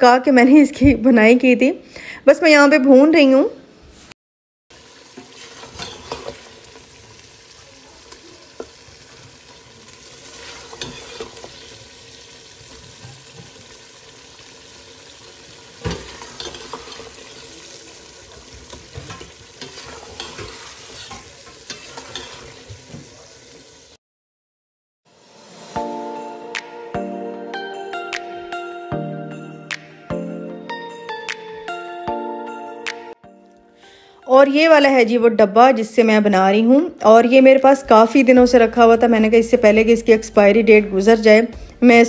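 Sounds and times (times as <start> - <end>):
meat sizzling in a pot: 4.7 - 24.0
spatula clanking on pot: 5.2 - 6.5, 10.5 - 11.7, 15.8 - 17.4, 18.7 - 23.1
spatula scraping a pot: 5.2 - 6.6, 10.0 - 11.8, 15.8 - 17.5, 18.4 - 23.1.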